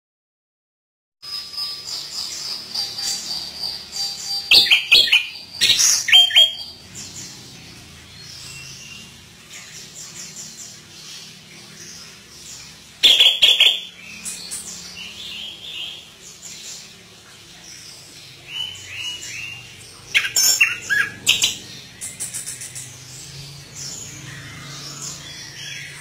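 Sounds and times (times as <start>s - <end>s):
soft bird chattering: 18.6s - 23.0s.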